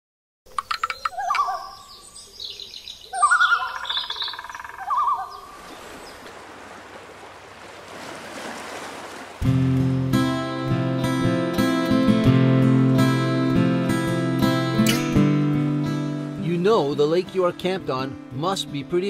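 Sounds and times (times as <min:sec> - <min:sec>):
warbled bird call: 0:00.5 - 0:06.4.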